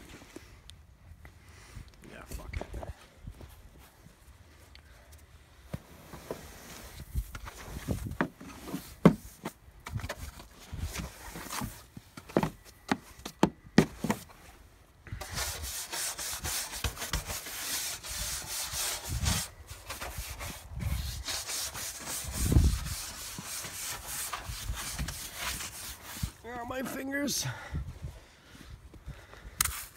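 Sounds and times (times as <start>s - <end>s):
brushing snow off car: 5.8s - 9.4s, 15.2s - 27.4s
knocks and scrapes on car: 8.1s - 10.2s.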